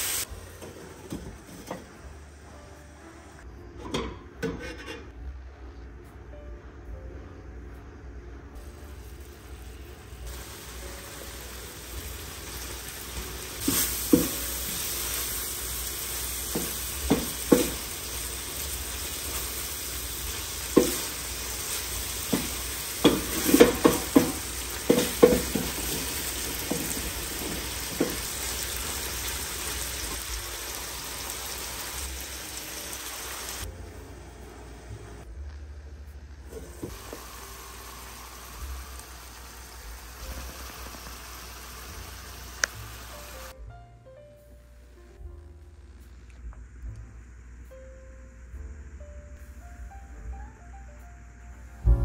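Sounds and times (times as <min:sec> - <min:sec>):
meat sizzling in a pan: 0:00.0 - 0:00.3, 0:10.3 - 0:33.7, 0:36.5 - 0:43.5
spatula scraping a pan: 0:04.4 - 0:05.1.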